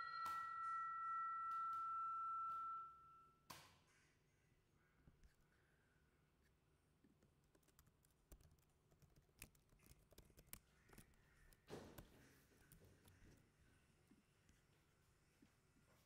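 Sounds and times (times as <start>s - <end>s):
typing on computer keyboard: 7.4s - 13.4s.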